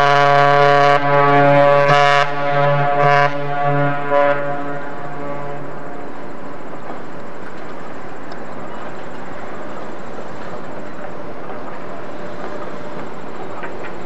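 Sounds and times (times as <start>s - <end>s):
deep ship whistle blast: 0.0s - 6.1s.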